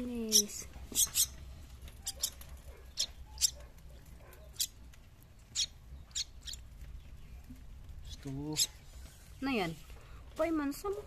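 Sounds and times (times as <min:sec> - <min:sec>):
bird nestling begging squeaks: 0:00.2 - 0:03.6, 0:04.4 - 0:04.8, 0:05.4 - 0:06.7, 0:08.0 - 0:08.8.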